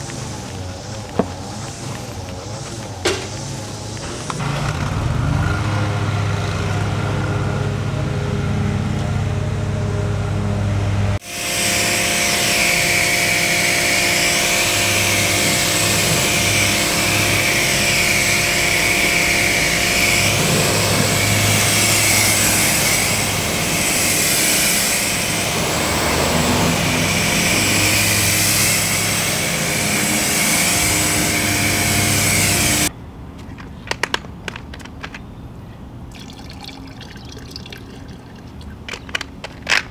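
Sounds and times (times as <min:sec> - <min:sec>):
pressure washer humming: 0:00.0 - 0:05.2, 0:11.2 - 0:32.9
pressure washer spray hissing: 0:11.2 - 0:32.9.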